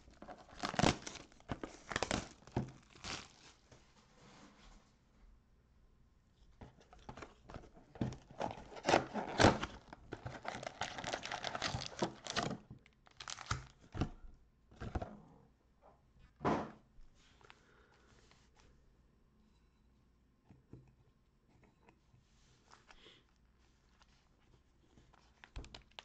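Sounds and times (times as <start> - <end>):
cardboard and wrappers tearing: 0.1 - 3.6, 8.3 - 13.8.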